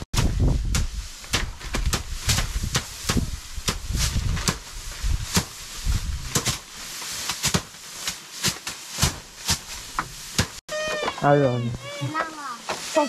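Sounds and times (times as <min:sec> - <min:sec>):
rice stalks thwacking on floor: 0:00.2 - 0:05.6, 0:06.3 - 0:10.6.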